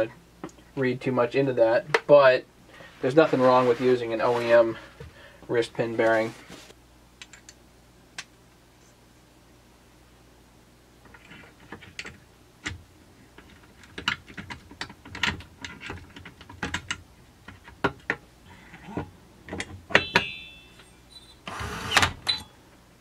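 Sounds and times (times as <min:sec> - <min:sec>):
metallic ring: 0:19.9 - 0:21.4.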